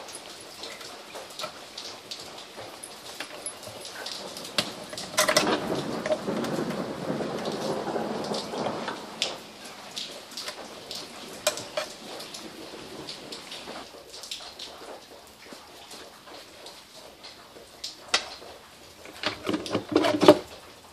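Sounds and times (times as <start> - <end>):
scraping and rattling: 3.2 - 6.9, 19.1 - 20.5.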